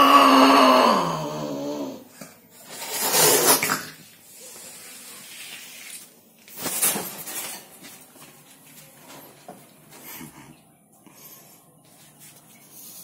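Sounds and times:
cat growling low: 0:00.0 - 0:02.1.

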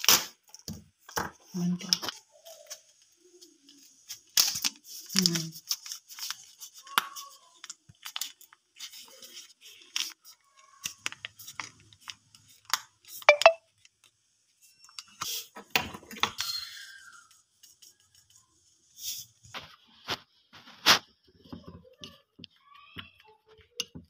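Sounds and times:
foil sachet crinkling: 0:01.5 - 0:15.5.

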